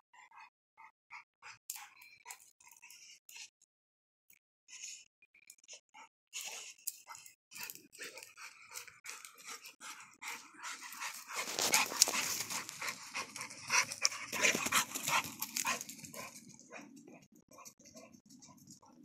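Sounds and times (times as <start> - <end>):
dog panting: 0.1 - 3.5, 5.7 - 19.0
scuffing and rustling: 11.1 - 12.9.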